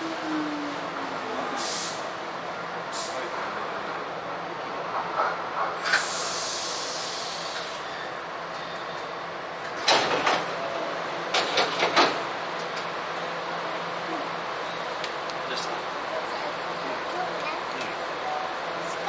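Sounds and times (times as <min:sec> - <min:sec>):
compressed air hiss: 0:01.6 - 0:02.0, 0:05.9 - 0:07.8.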